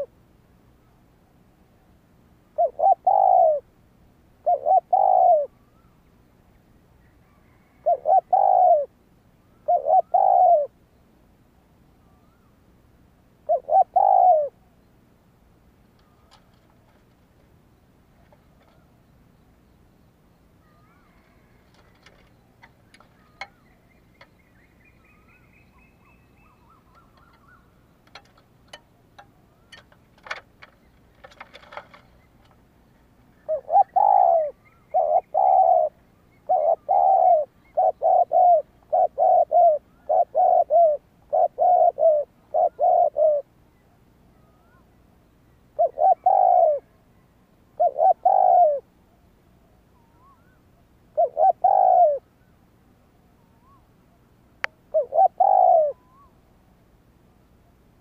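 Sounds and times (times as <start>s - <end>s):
distant birds chirping: 0.0s - 58.0s
dove cooing: 2.5s - 3.7s, 4.4s - 6.0s, 7.1s - 10.8s, 13.4s - 14.6s, 16.0s - 17.2s, 20.6s - 24.4s, 25.1s - 43.5s, 45.7s - 52.3s, 54.7s - 56.4s
faint clicks: 26.9s - 32.6s.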